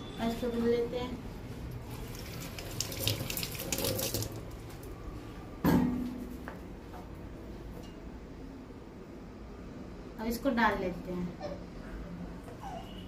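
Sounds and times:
tap water splashing in a sink: 0:02.0 - 0:04.9.

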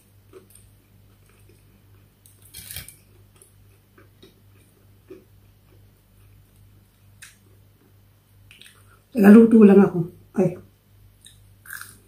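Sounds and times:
person chewing: 0:00.3 - 0:07.6, 0:11.2 - 0:12.0
wet eating clicks and smacks: 0:08.5 - 0:08.8.

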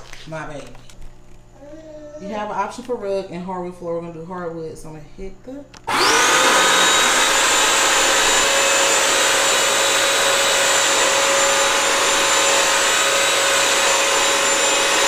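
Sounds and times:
wet-dry vacuum motor whining: 0:05.7 - 0:15.0.

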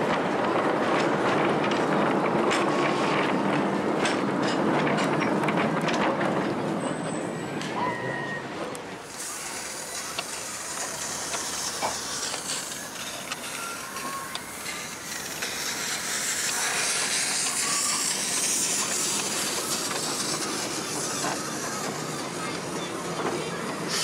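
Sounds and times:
steam locomotive hissing: 0:07.8 - 0:24.0.

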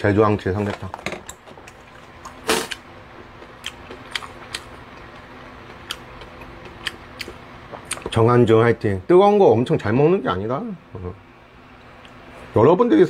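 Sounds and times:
faint steady hum: 0:00.0 - 0:13.0
chewing and chopsticks clicking: 0:01.7 - 0:08.2
loud noisy puff: 0:02.4 - 0:02.8.

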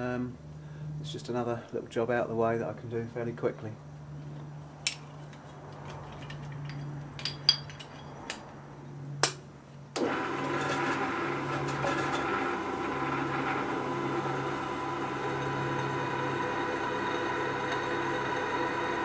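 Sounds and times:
metal clanks: 0:04.8 - 0:08.6
pillar drill motor running: 0:10.0 - 0:19.0.

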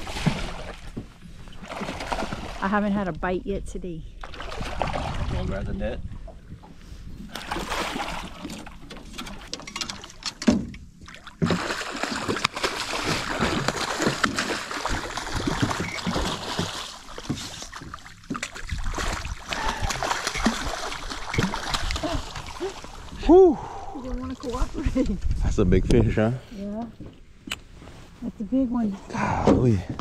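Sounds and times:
fish thrashing in water: 0:00.0 - 0:02.6, 0:04.2 - 0:05.4, 0:07.3 - 0:10.4, 0:11.0 - 0:24.7.

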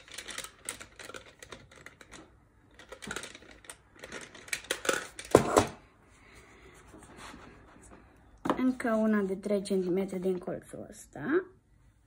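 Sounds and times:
small objects clicking and rattling: 0:00.0 - 0:05.7.

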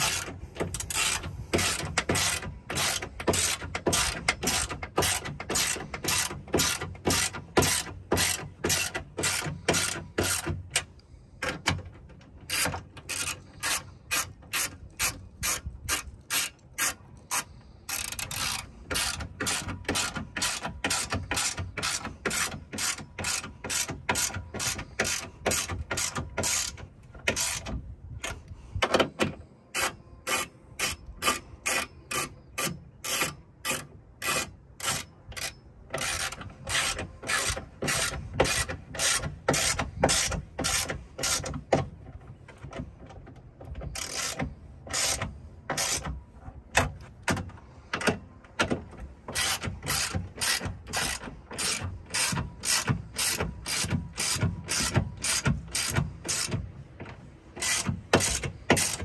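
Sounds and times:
socket ratchet clicking: 0:00.0 - 0:11.8, 0:43.9 - 0:46.1, 0:49.3 - 0:56.7.

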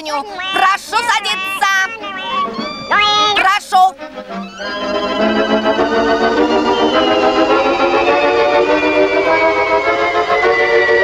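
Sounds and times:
cartoon background music chords: 0:00.4 - 0:11.0
high note gliding downward: 0:00.5 - 0:11.0.

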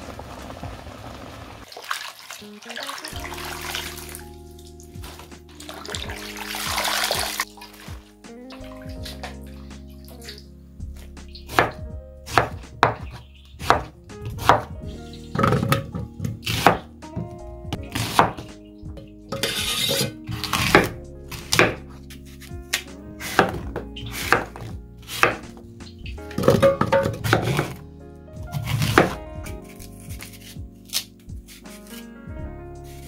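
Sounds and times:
knife chopping on cutting board: 0:11.0 - 0:14.8, 0:15.4 - 0:16.9, 0:17.7 - 0:18.5, 0:19.3 - 0:25.6, 0:26.4 - 0:27.8, 0:28.5 - 0:32.0.

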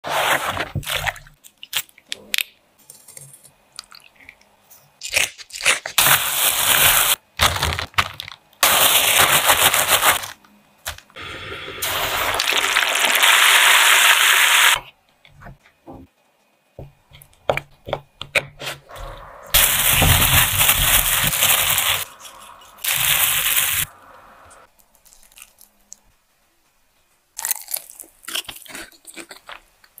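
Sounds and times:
deep-frying sizzling and crackling: 0:11.8 - 0:14.8.

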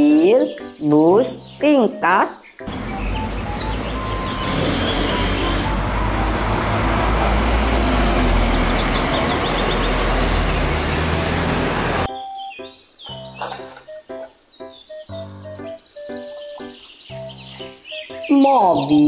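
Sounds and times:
bus engine and road rumble: 0:02.7 - 0:12.1.

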